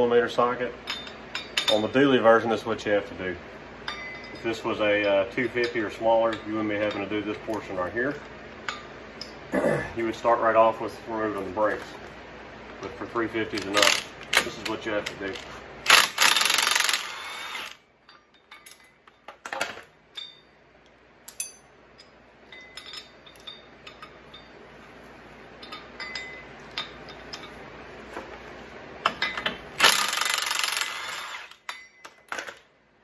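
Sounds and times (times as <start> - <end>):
impact wrench hammering: 15.9 - 17.8, 29.1 - 32.4
metallic clinks of nuts: 15.9 - 24.6.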